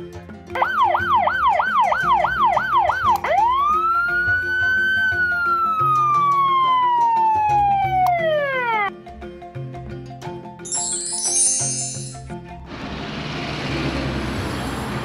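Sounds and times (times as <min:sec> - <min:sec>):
background music: 0:00.0 - 0:12.9
police siren yelp and wail: 0:00.6 - 0:08.9.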